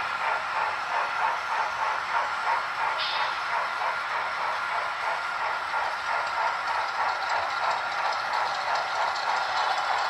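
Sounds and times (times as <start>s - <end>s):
model train wheels hissing on rails: 0.0s - 10.0s.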